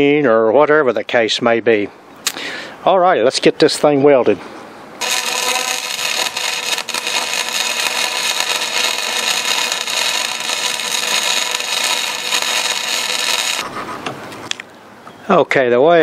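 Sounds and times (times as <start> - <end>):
welding arc crackling: 5.0 - 13.6.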